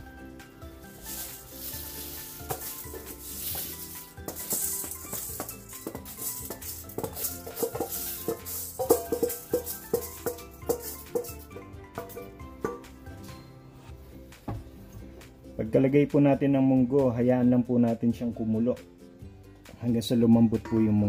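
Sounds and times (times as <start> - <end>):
background music: 0.0 - 21.0
dry beans rattling in a bowl: 0.8 - 12.4.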